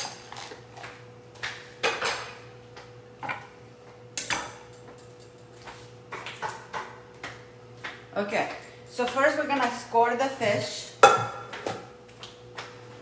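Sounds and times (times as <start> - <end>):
utensils and dishes clinking: 0.0 - 0.7.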